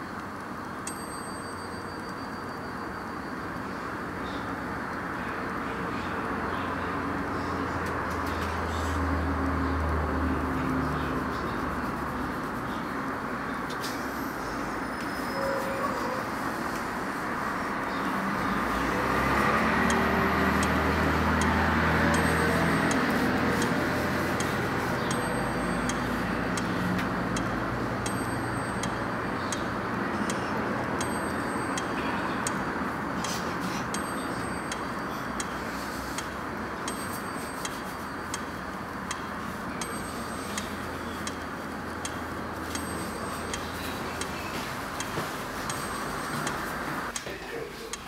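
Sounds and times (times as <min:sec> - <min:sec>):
regular ticking: 0:00.0 - 0:05.6, 0:16.9 - 0:47.3.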